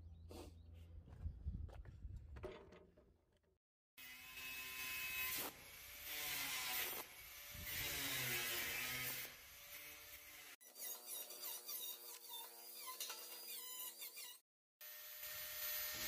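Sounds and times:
angle grinder cutting metal mesh: 0:04.0 - 0:16.0.

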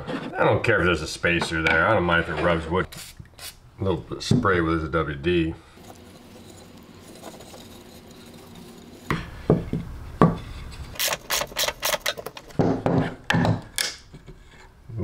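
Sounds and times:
metal hardware clicking and clinking: 0:11.0 - 0:12.6.

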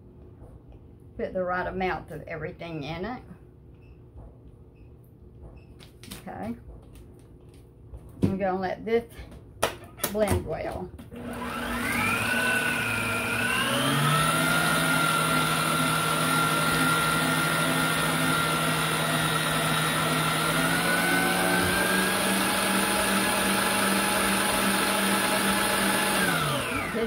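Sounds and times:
stand mixer motor whine: 0:11.1 - 0:27.0.

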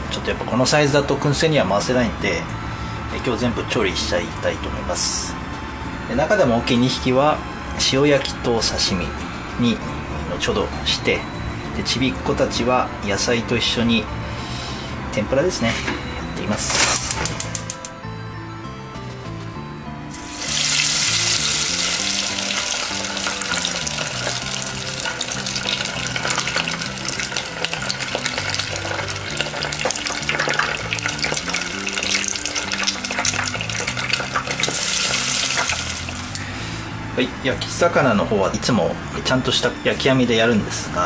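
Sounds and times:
tempura sizzling in hot oil: 0:20.1 - 0:36.9.

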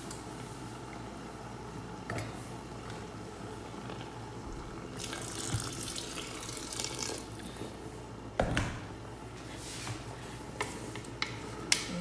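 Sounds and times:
water pouring into a pot: 0:05.0 - 0:07.3.

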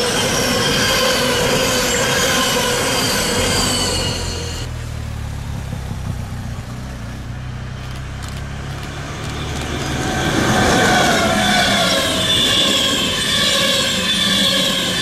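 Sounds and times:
train wheel squeal: 0:00.0 - 0:04.7, 0:09.8 - 0:15.0
train rumbling: 0:00.0 - 0:15.0.

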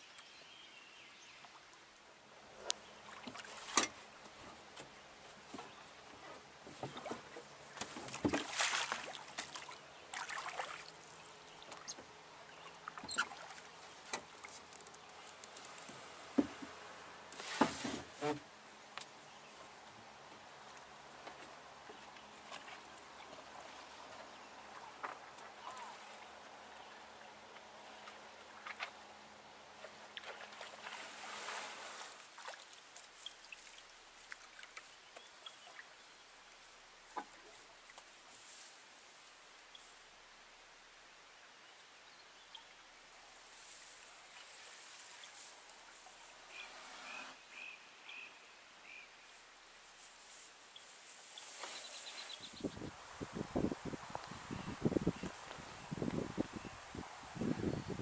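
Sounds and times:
water trickling around boat: 0:00.0 - 0:40.2, 0:42.0 - 0:47.7
oars swishing and splashing: 0:02.6 - 0:18.4, 0:20.6 - 0:29.1, 0:29.8 - 0:35.9, 0:50.0 - 0:52.6.

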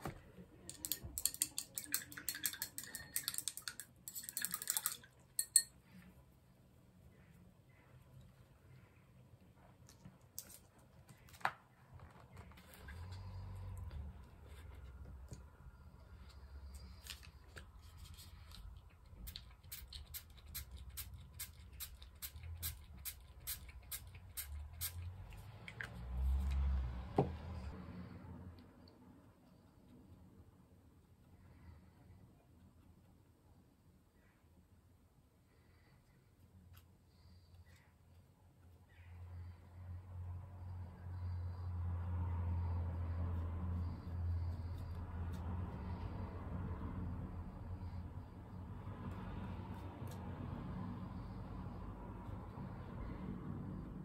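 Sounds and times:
small objects clinking in container: 0:00.7 - 0:05.7.

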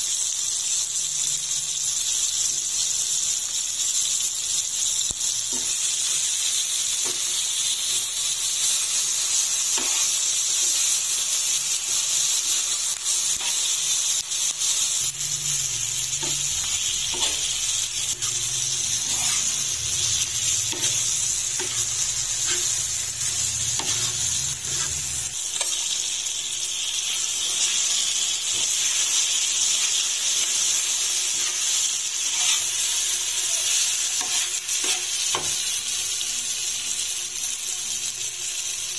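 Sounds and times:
vegetables sizzling in oil: 0:00.0 - 0:38.9
knife scraping on iron griddle: 0:09.7 - 0:10.2, 0:13.4 - 0:13.8, 0:16.2 - 0:17.5, 0:18.1 - 0:25.8, 0:32.3 - 0:32.7.

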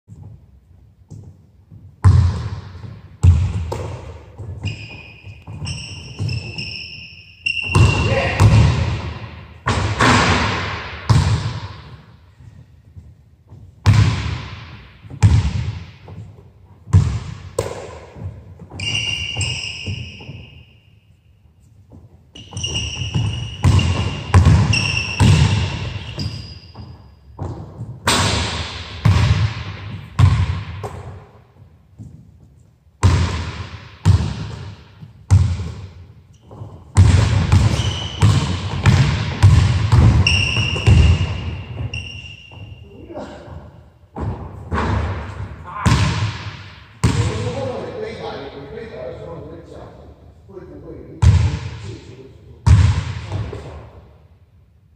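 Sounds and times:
sneakers squeaking: 0:00.1 - 0:47.9
basketball bouncing on hardwood: 0:01.1 - 0:06.6, 0:07.6 - 0:11.9, 0:13.0 - 0:16.3, 0:16.9 - 0:18.8, 0:21.9 - 0:28.0, 0:29.0 - 0:31.2, 0:33.0 - 0:42.8, 0:44.2 - 0:47.4.

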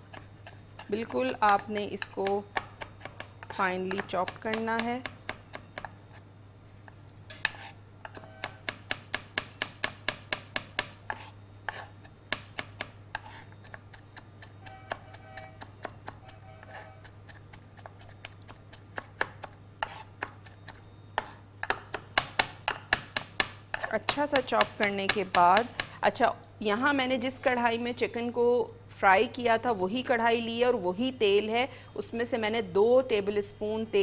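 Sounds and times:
knife chopping on wooden board: 0:07.3 - 0:26.0.

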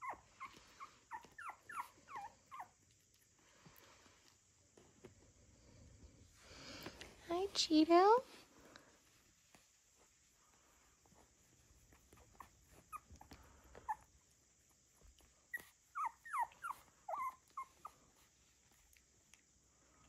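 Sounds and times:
puppies squeaking: 0:00.0 - 0:02.7, 0:12.2 - 0:14.1, 0:15.5 - 0:18.0.

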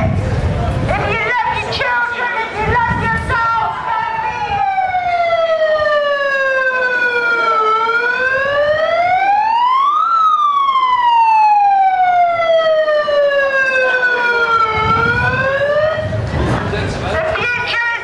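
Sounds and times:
siren wailing: 0:02.9 - 0:16.3.

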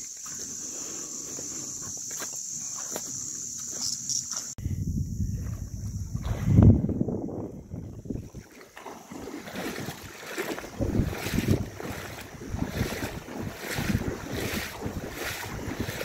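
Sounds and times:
wading through water: 0:00.0 - 0:04.6, 0:05.2 - 0:16.0
wind on microphone: 0:04.6 - 0:16.0.

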